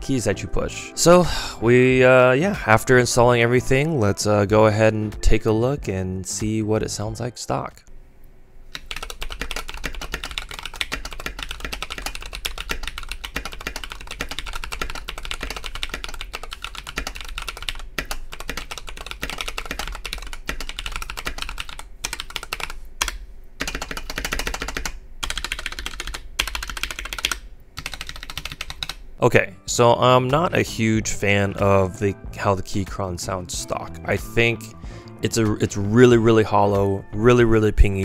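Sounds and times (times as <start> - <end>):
mechanical keyboard typing: 8.8 - 29.0.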